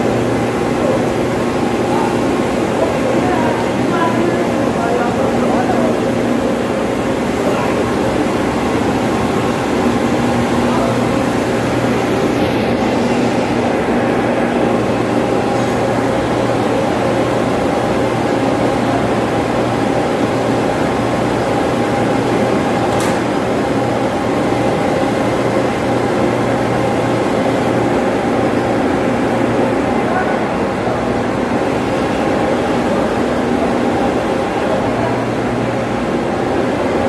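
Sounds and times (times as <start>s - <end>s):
ventilation fan blower drone: 0.0s - 37.0s.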